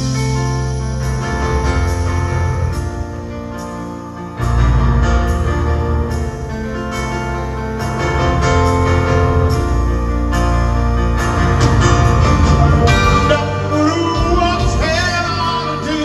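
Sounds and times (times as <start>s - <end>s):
live rock band with piano: 0.0s - 16.0s.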